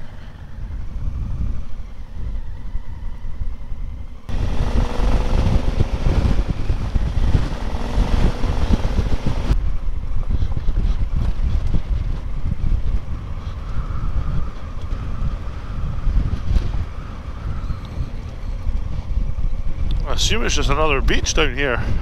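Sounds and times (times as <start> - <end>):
wind rushing over microphone: 0.0 - 22.0
motorcycle engine running: 4.3 - 9.6.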